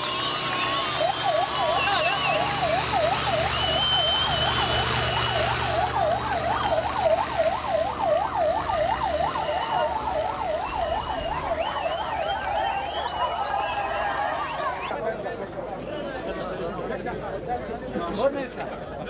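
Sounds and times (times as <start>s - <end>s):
ambulance siren wailing: 0.0s - 14.9s.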